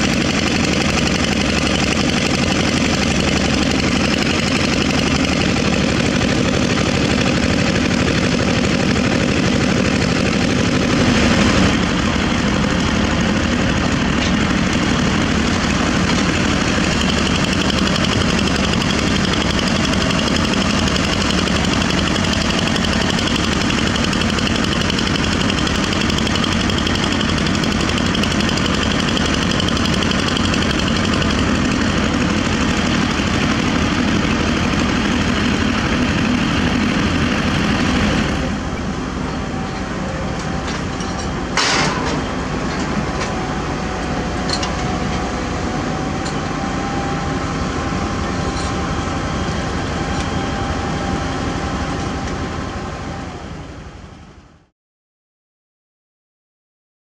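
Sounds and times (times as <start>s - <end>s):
heavy machinery diesel engines: 0.0s - 54.7s
sharp metal clank: 40.9s - 42.3s.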